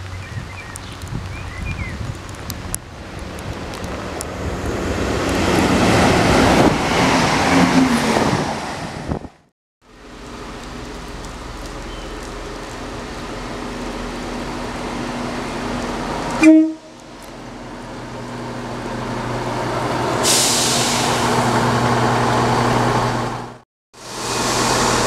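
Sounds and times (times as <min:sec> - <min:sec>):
train engine hum: 0:02.2 - 0:25.0
train horn toot: 0:16.4 - 0:16.9
rushing hiss of wheels and air: 0:19.9 - 0:22.9, 0:24.0 - 0:25.0.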